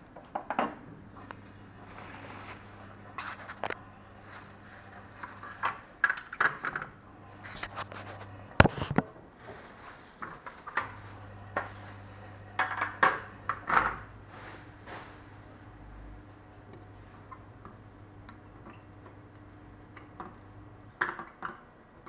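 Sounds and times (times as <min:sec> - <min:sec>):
plastic wrapping crinkling: 0:01.8 - 0:05.6.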